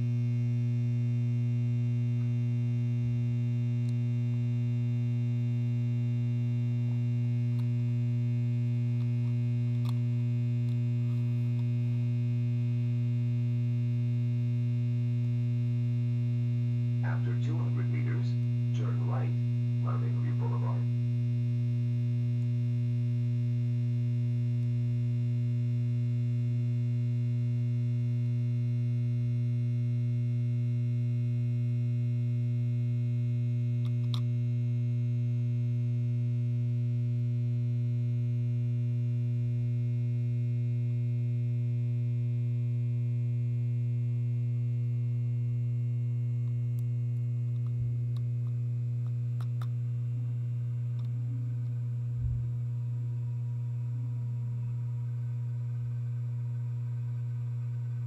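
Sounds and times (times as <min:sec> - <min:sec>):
lamp ballast humming: 0:00.0 - 0:58.0
faint click: 0:51.0 - 0:51.2.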